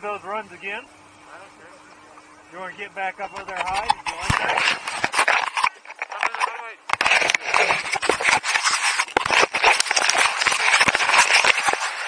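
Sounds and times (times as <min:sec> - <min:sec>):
skis scraping over snow: 0:07.0 - 0:12.0.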